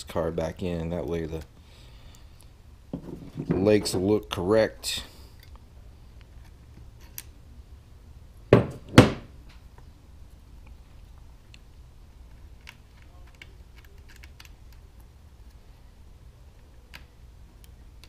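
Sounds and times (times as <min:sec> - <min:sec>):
loud hard thunks: 0:08.5 - 0:09.3
faint clicks of handling: 0:10.6 - 0:15.6.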